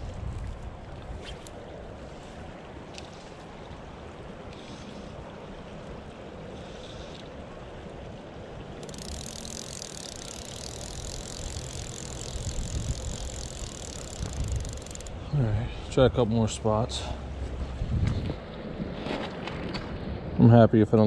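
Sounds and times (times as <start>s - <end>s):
wind rumble on microphone: 0.0s - 2.8s, 11.4s - 15.2s, 17.3s - 21.0s
creek flowing over rocks: 0.1s - 17.8s.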